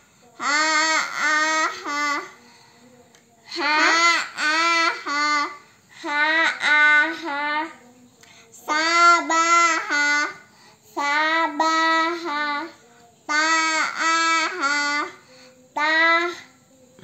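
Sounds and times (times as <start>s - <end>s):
children chanting syllables: 3.4s - 17.0s.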